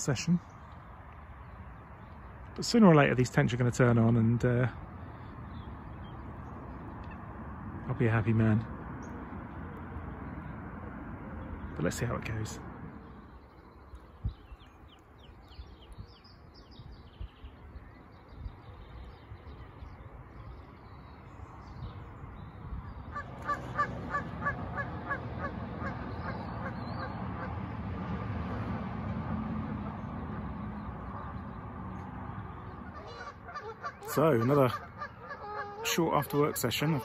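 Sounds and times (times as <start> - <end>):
goose honking: 23.1 - 27.6, 32.8 - 37.0.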